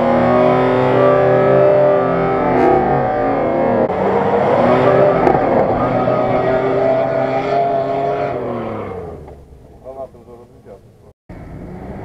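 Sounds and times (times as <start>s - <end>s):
engine revving in loose sand: 3.9s - 9.2s.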